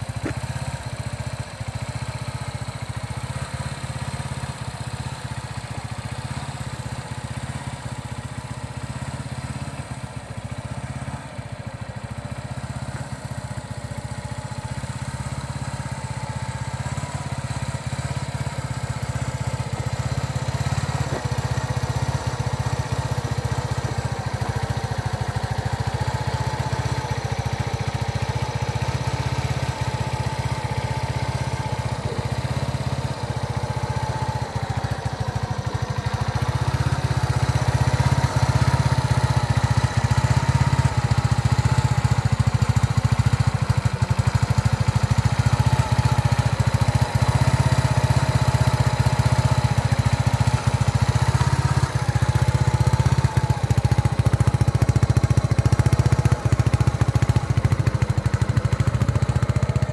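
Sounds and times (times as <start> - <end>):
motorcycle engine idling: 0.0 - 59.9.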